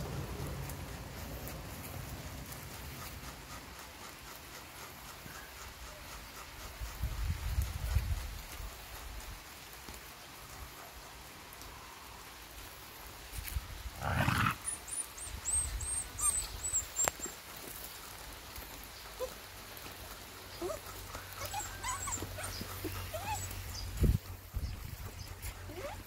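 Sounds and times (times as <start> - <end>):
dog growling: 14.0 - 14.6
puppy whining: 14.2 - 17.4, 20.6 - 23.9, 25.5 - 26.0.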